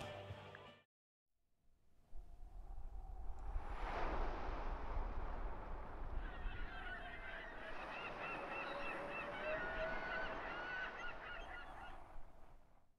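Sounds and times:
low rumble: 1.8 - 7.1
flock of birds honking: 6.6 - 12.1.

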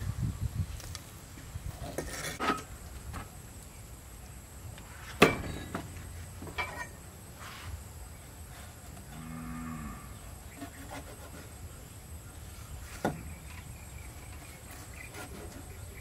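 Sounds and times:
cow mooing: 9.1 - 10.2.

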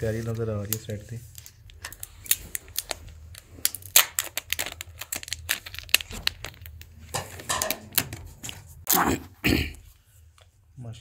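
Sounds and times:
plastic film tearing: 0.0 - 8.7
plastic film crinkling: 0.0 - 8.8.

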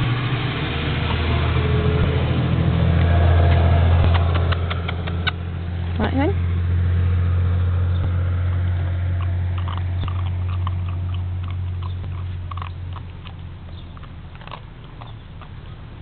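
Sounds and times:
steady low hum: 0.0 - 16.0
puppy chewing a treat: 7.9 - 16.0.

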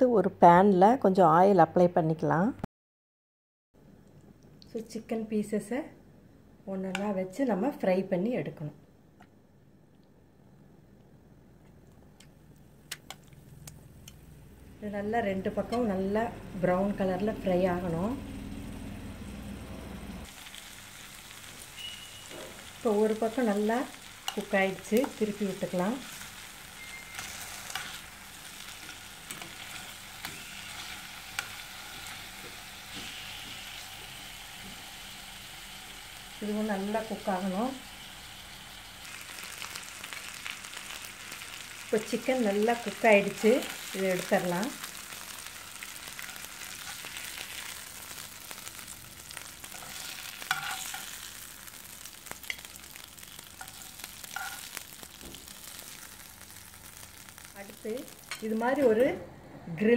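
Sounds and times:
chicken sizzling in a frying pan: 13.4 - 59.0
metal spatula clicking and scraping: 49.7 - 51.1, 53.6 - 54.7.

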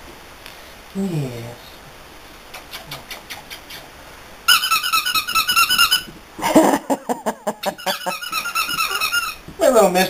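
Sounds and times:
puppy squealing: 4.5 - 6.1, 7.6 - 9.4
puppy yelping: 4.5 - 6.1, 7.6 - 9.4.

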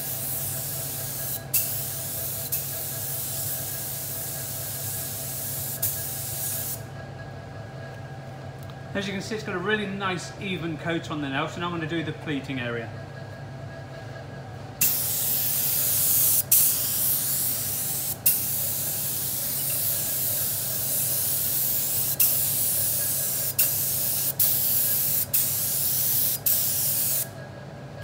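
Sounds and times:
spray gun hissing: 0.0 - 6.8, 14.8 - 27.3.

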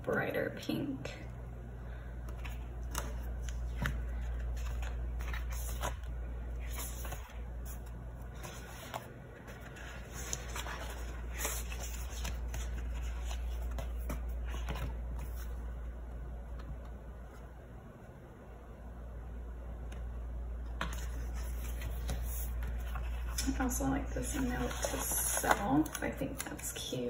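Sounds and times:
steady low hum: 0.0 - 27.0
paper pages rustling: 2.3 - 15.7, 20.8 - 27.0.

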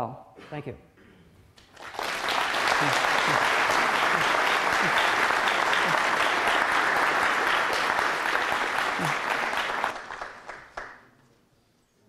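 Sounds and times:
audience applauding: 1.6 - 11.1.

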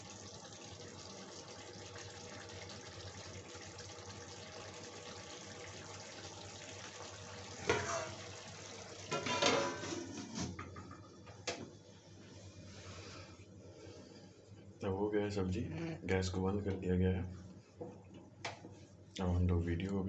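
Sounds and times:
curry hissing in pan: 0.0 - 10.2
metal lid clanking: 7.6 - 8.2, 9.1 - 10.5.

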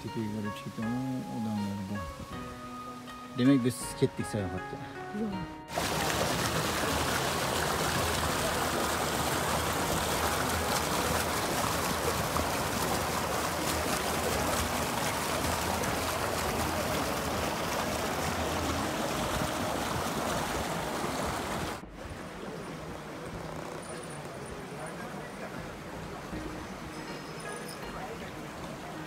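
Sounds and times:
water running down stone channel: 5.7 - 29.0.

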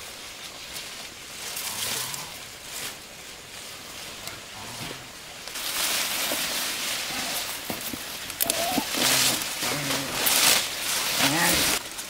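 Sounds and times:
vines rustling and crackling: 0.0 - 12.0
stems snapping: 7.4 - 12.0.

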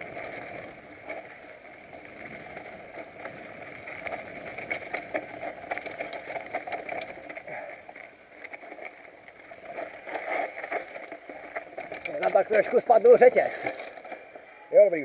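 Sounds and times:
bike rattling over bumps: 0.0 - 15.0
bike tyres on rocky trail: 0.0 - 15.0.

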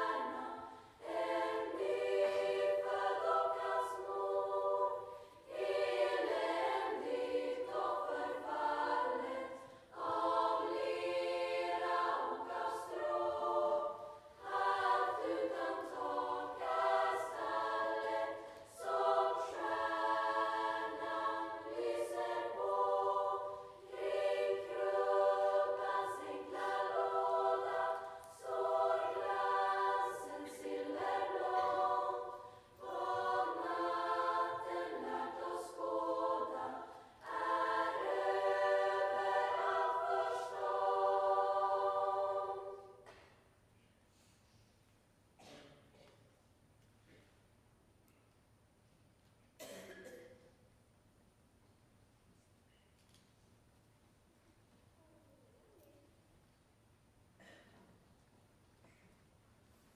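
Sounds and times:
choir of high voices singing: 0.0 - 43.3.

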